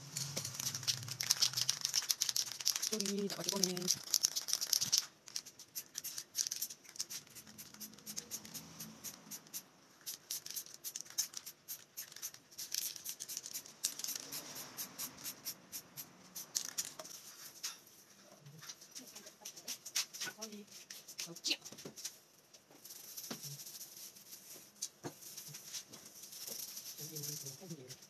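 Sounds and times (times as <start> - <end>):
spray can rattling: 0.0 - 17.6
spray can hissing: 0.3 - 5.0, 5.6 - 16.9.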